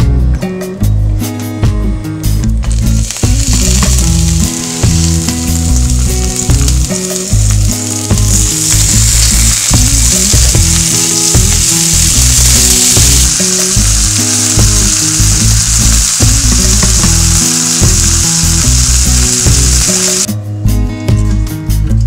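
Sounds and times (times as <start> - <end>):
lobster sizzling in a pan: 2.7 - 20.3.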